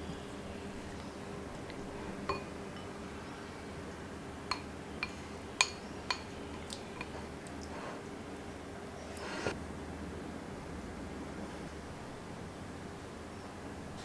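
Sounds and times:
glass bowl clinking: 2.2 - 3.1, 4.5 - 7.2.

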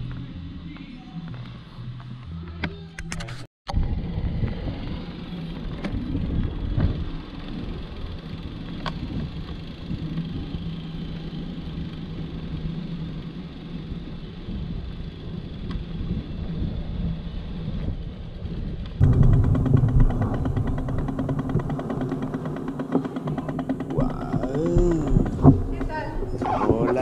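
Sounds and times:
bicycle tyre noise: 3.7 - 27.0
wind buffeting microphone: 14.2 - 27.0.

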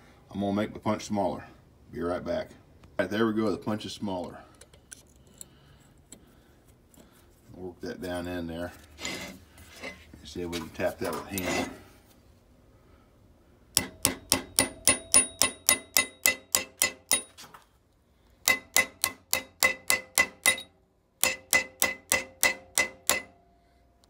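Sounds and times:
hammer tapping metal punch: 13.7 - 17.4, 18.4 - 23.5.

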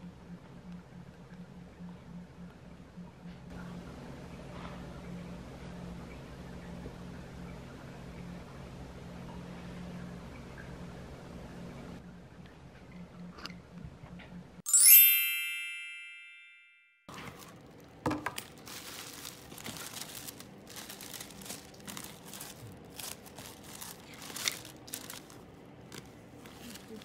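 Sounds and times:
bell-like chime: 14.7 - 17.1
tissue paper and plastic crinkling: 17.1 - 27.0.

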